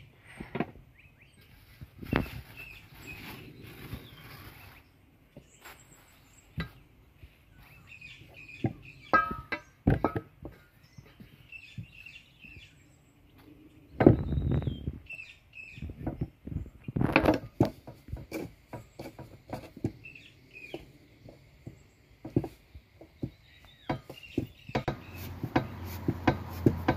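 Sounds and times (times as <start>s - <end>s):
small birds chirping: 0.0s - 9.8s, 10.5s - 17.1s, 17.8s - 26.9s.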